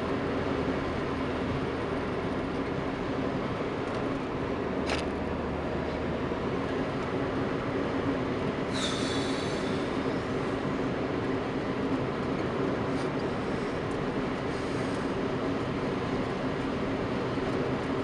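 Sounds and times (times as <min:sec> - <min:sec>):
car engine and tyre drone: 0:00.0 - 0:18.0
high-pitched squeal: 0:08.7 - 0:10.2.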